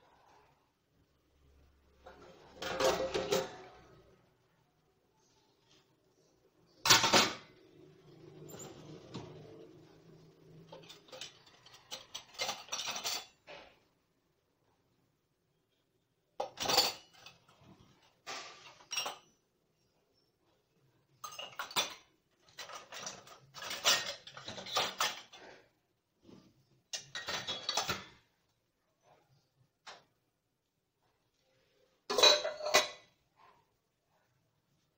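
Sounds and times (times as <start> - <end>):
steel dishes clattering: 2.0 - 4.0, 6.8 - 7.5, 10.6 - 13.8, 16.4 - 19.4, 21.2 - 25.6, 26.9 - 28.3, 32.1 - 33.2.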